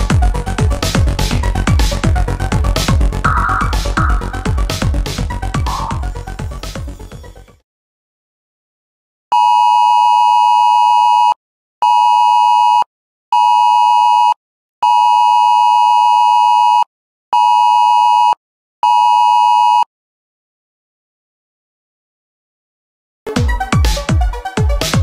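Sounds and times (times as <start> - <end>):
harsh two-tone alert signal: 3.3 - 4.5.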